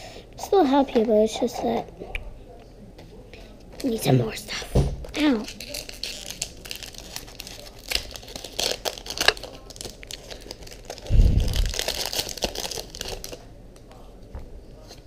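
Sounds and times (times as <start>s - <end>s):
foil wrapper crinkling and tearing: 5.2s - 13.4s.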